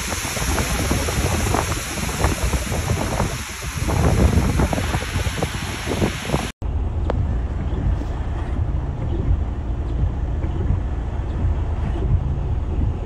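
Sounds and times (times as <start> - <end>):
water splashing: 0.0 - 6.6
wind on microphone: 0.0 - 13.0
vehicle low rumble: 6.4 - 13.0.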